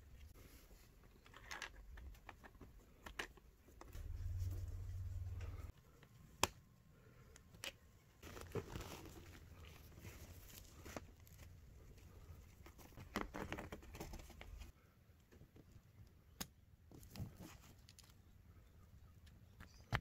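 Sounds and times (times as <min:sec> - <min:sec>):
fabric duct hose crinkling and rattling: 0:08.2 - 0:14.7.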